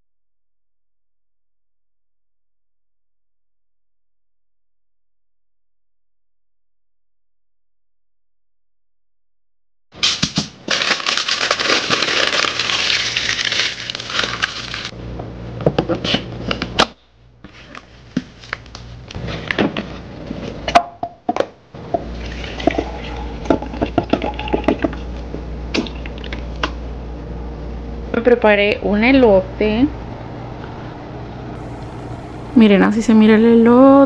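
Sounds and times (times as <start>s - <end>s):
steady low hum: 21.6s - 34.0s.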